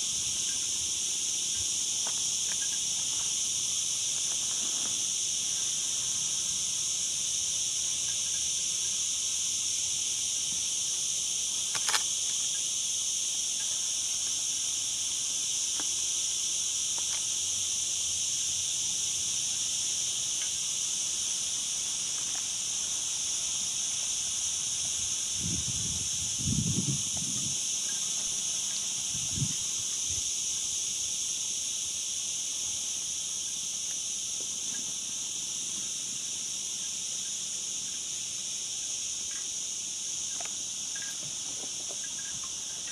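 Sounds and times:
insects chirring: 0.0s - 42.9s
sharp click: 11.7s - 12.1s.

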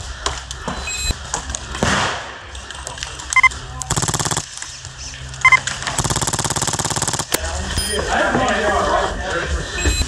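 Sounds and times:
airsoft gun full-auto burst: 3.9s - 4.5s, 5.5s - 7.4s.

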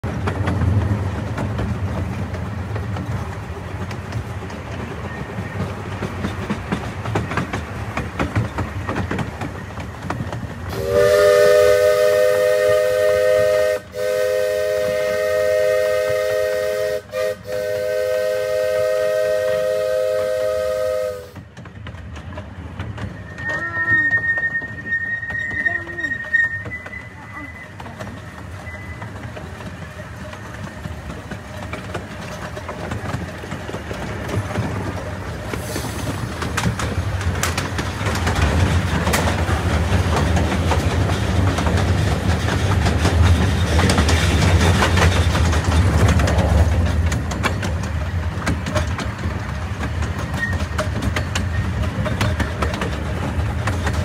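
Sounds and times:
miniature steam locomotive running: 0.0s - 54.0s
steam whistle chord: 10.8s - 21.3s.

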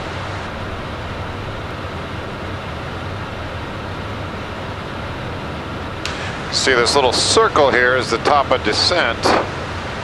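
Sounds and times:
jet cockpit air and engine noise: 0.0s - 10.0s
low hum: 0.0s - 10.0s.

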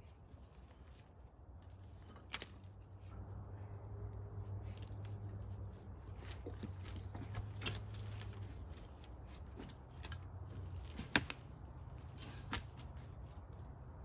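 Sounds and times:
faint low hum: 0.0s - 10.8s.

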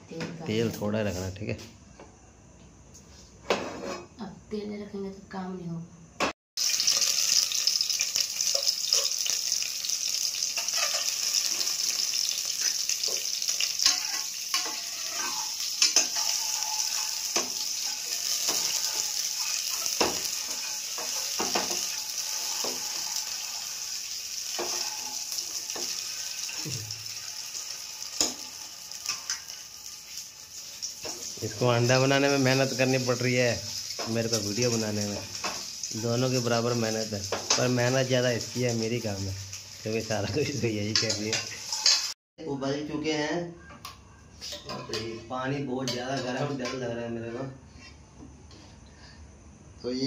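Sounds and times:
steel spoon scraping a pan: 3.4s - 4.2s, 8.4s - 9.6s, 10.4s - 26.6s, 27.2s - 37.7s, 40.8s - 42.2s, 44.4s - 48.7s
eggs sizzling in oil: 6.6s - 42.2s.

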